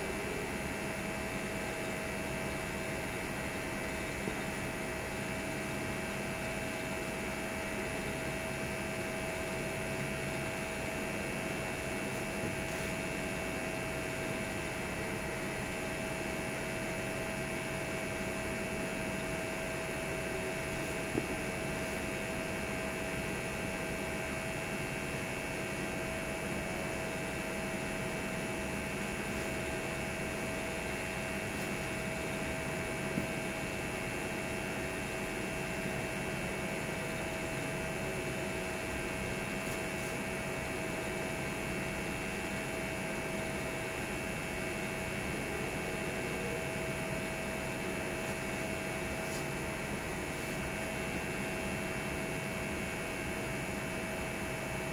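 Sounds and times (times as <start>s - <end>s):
constant hum with tones: 0.0s - 54.9s.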